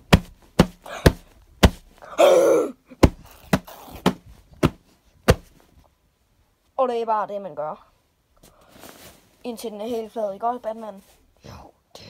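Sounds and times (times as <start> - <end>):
hand smacking cushion: 0.0 - 2.0, 3.0 - 5.7
grunt-like shout: 2.2 - 2.8.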